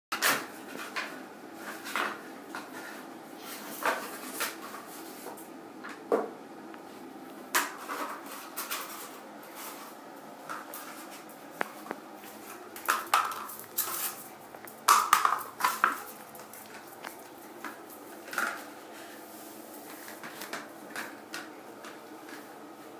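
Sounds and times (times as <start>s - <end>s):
cardboard roll clattering on tile floor: 0.2s - 6.3s, 7.5s - 19.1s, 19.8s - 22.5s.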